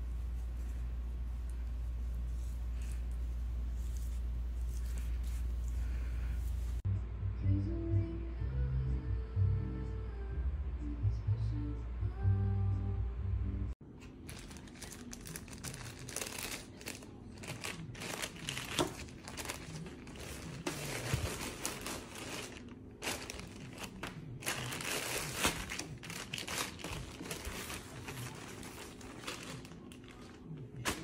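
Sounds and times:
plastic bag crinkling: 14.1s - 31.0s.

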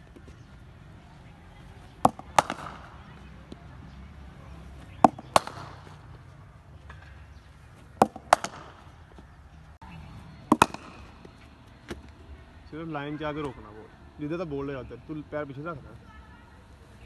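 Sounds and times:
cricket ball pitching: 1.8s - 3.7s, 4.6s - 9.3s, 10.4s - 12.2s
bat hitting ball: 2.0s - 3.6s, 4.8s - 6.2s, 6.8s - 9.0s, 10.4s - 11.3s.

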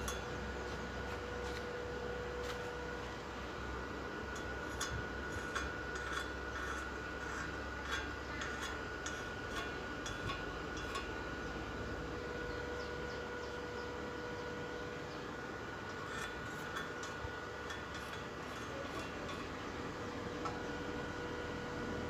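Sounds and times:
steady hum: 0.0s - 22.0s
welding electrode clinking on steel: 4.3s - 11.1s.

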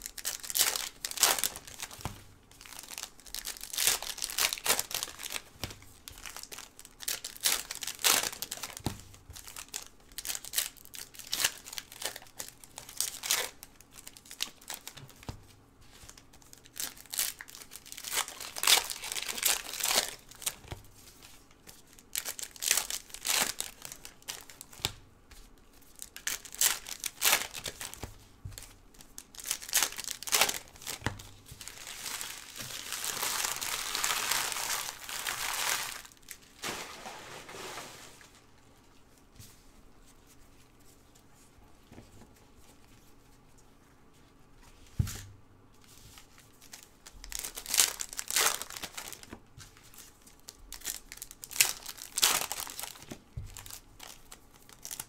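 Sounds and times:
wrappers tearing and crinkling: 0.0s - 8.8s, 9.4s - 15.1s, 16.1s - 20.6s, 22.0s - 24.8s, 26.0s - 38.4s, 46.2s - 55.0s.

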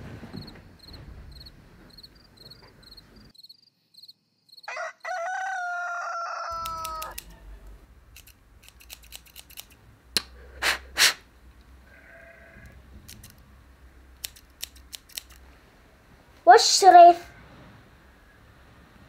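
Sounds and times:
crickets chirping: 0.3s - 4.8s
rooster crowing: 4.6s - 7.2s
small scissors snipping: 6.6s - 7.3s, 8.2s - 10.3s, 14.2s - 15.4s.

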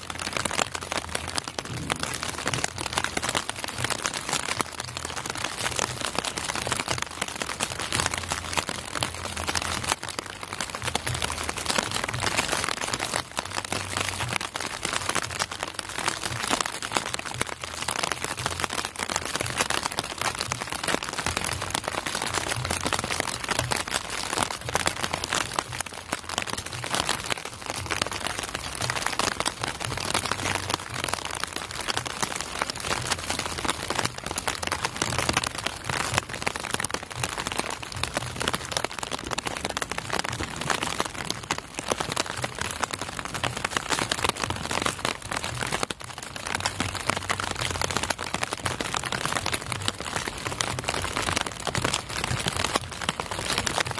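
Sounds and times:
rain patter: 0.0s - 53.9s.

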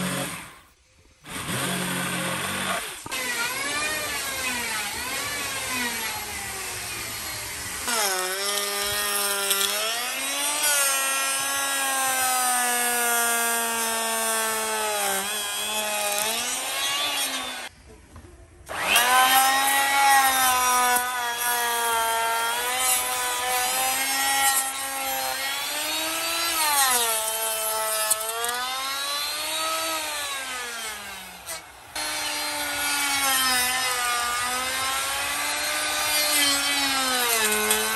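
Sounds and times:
power tool cutting wood: 0.0s - 17.7s, 18.7s - 37.9s.

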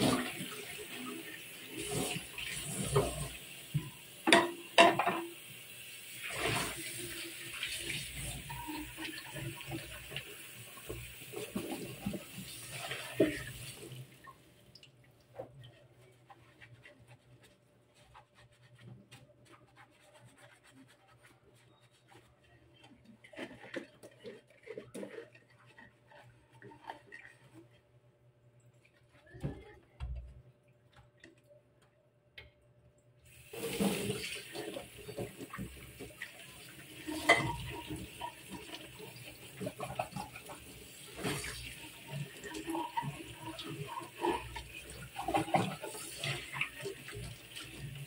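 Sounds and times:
tap water running into a sink: 0.0s - 15.8s, 33.3s - 48.0s.

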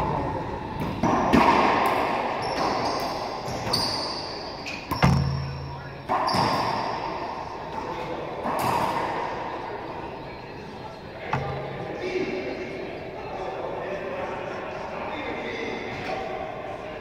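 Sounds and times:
sneakers squeaking on floor: 2.4s - 9.1s, 10.2s - 12.6s
racquetball cracking off walls: 4.8s - 6.9s.

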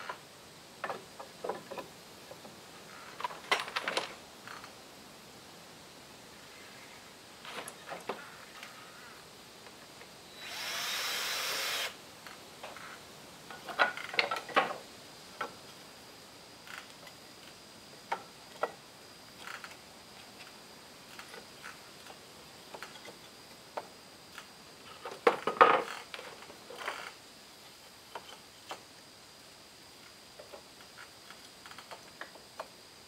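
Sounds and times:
power tool running: 10.4s - 12.0s.

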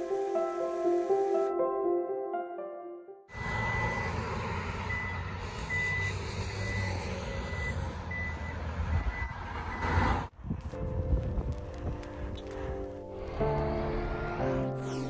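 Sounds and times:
reversing alarm beeping: 3.3s - 10.0s
street traffic: 3.3s - 15.0s.

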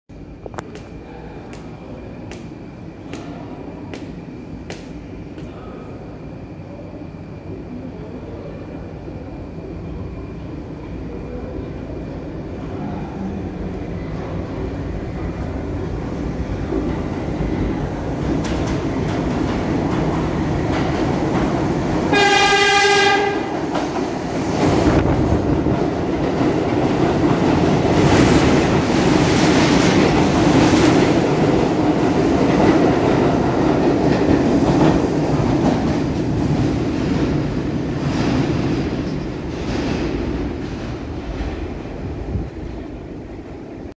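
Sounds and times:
subway train rumbling and clattering: 0.1s - 43.9s
train horn blast: 22.1s - 23.6s.

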